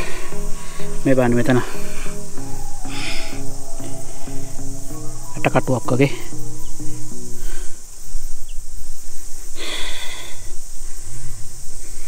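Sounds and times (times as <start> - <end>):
soft background music: 0.0 - 7.8
high-pitched insect chorus: 0.0 - 12.0.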